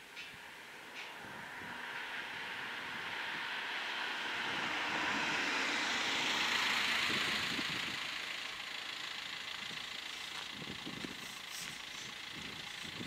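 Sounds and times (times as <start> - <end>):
car braking: 0.0 - 13.0
car driving past: 0.3 - 9.4.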